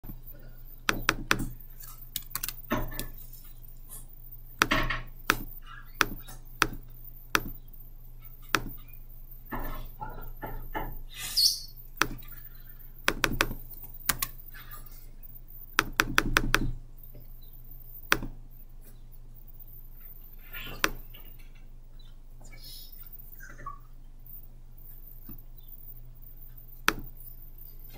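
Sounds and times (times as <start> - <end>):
low electrical hum: 0.0 - 27.9
computer mouse clicks: 0.8 - 3.2, 4.6 - 7.7, 8.5 - 8.8, 12.0 - 12.4, 13.0 - 14.4, 15.8 - 16.8, 18.0 - 18.4, 20.6 - 21.2, 26.8 - 27.2.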